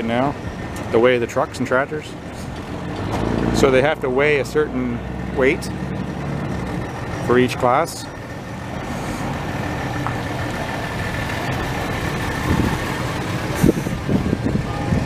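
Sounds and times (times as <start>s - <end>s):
vehicle engine idling: 0.0s - 15.0s
faint voices: 13.4s - 15.0s.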